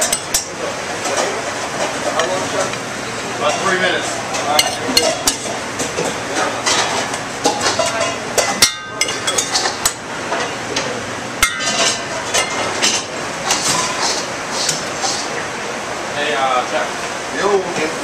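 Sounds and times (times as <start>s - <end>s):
clinks of pans and plates: 0.0s - 2.4s, 4.3s - 15.3s
kitchen background noise: 0.0s - 18.0s.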